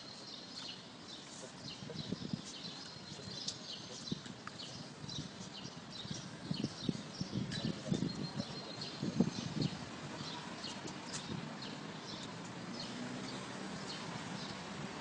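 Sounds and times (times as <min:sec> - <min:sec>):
small birds chirping: 0:00.0 - 0:15.0
flip-flop footsteps on pavement: 0:10.8 - 0:11.5.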